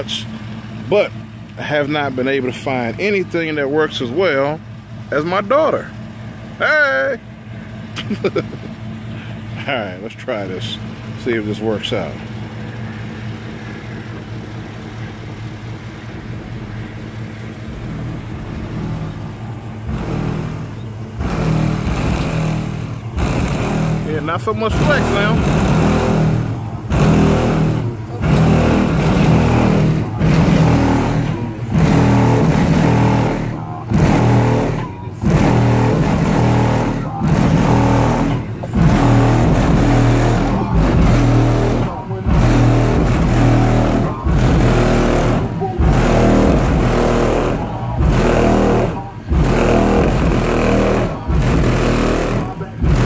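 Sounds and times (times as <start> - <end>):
loud bass-heavy music: 1.6 - 53.0
truck body rattling: 11.9 - 53.0.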